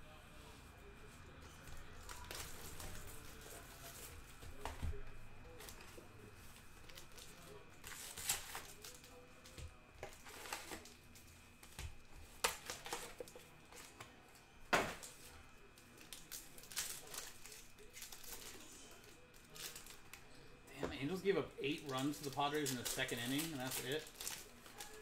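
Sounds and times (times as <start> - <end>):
wrappers crinkling and tearing: 1.6 - 20.2, 21.0 - 25.0.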